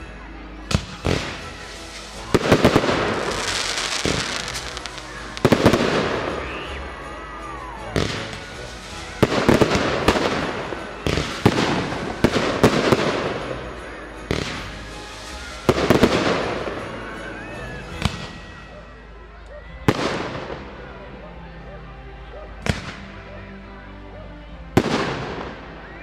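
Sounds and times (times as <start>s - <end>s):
fireworks bangs: 0.7s - 7.1s, 8.0s - 17.2s
fireworks crackling: 0.7s - 18.6s, 24.8s - 25.8s.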